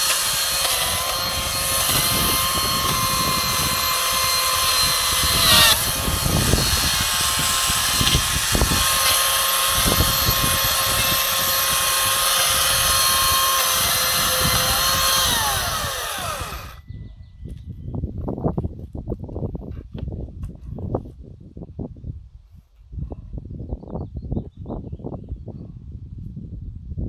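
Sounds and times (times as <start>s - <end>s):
chainsaw cutting branches: 0.0s - 16.8s.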